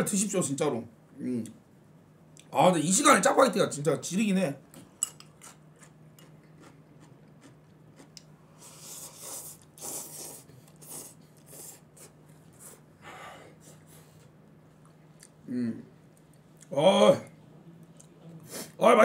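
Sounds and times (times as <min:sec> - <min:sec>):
person slurping noodles: 0:08.6 - 0:12.8.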